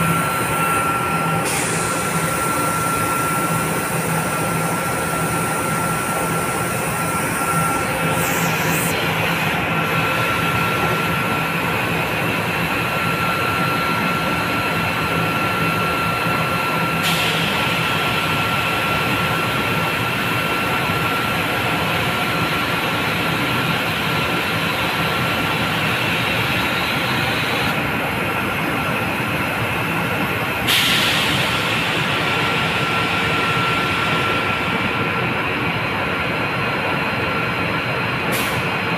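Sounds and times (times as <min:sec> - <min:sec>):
high whine: 0:00.0 - 0:22.4
centrifuge mechanical hum: 0:00.0 - 0:38.4.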